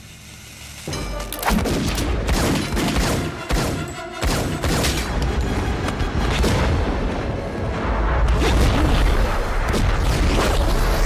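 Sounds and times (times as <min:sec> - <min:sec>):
film score music: 0:00.9 - 0:10.7
rapid handgun fire: 0:01.5 - 0:05.0.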